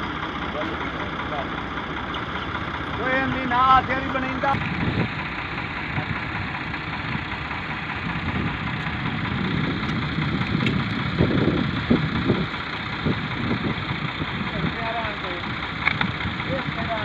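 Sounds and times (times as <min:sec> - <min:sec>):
tractor diesel engine idling: 0:00.0 - 0:17.0.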